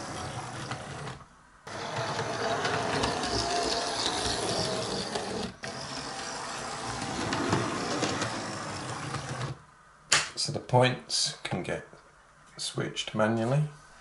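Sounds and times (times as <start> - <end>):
small electric motor whirring: 0.0 - 9.6.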